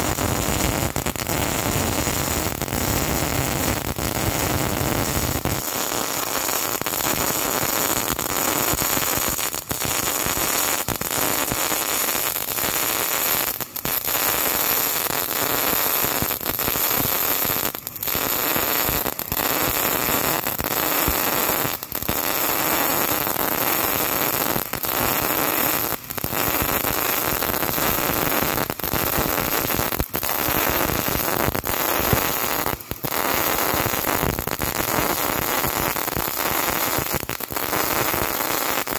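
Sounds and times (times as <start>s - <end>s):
welding arc buzzing: 0.0s - 13.1s.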